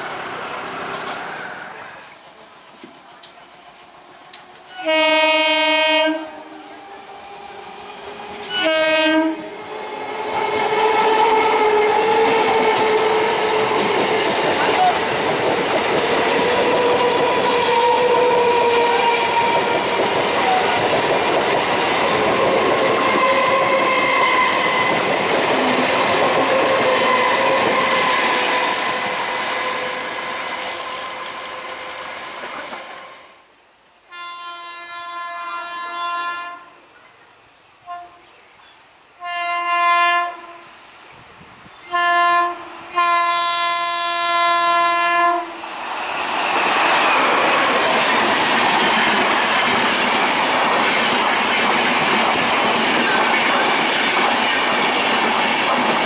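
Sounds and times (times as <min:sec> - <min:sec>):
train wheels rumbling on rail: 0:00.0 - 0:02.0, 0:06.6 - 0:33.3, 0:42.9 - 0:56.0
locomotive horn blasts: 0:04.7 - 0:06.5, 0:08.5 - 0:09.5, 0:34.1 - 0:36.7, 0:39.2 - 0:40.7, 0:41.8 - 0:45.6.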